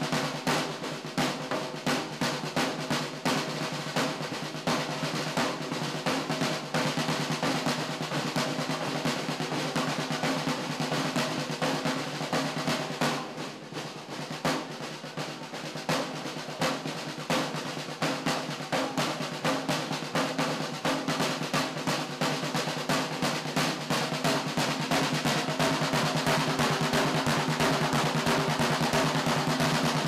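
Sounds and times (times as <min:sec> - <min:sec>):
field drums march beat: 0:00.0 - 0:30.0.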